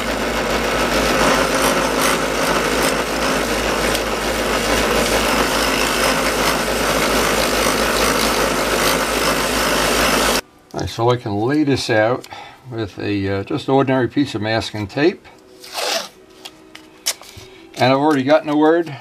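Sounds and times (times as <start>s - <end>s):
abrasive disc grinding metal: 0.0s - 10.4s
drill press motor hum: 0.0s - 10.4s.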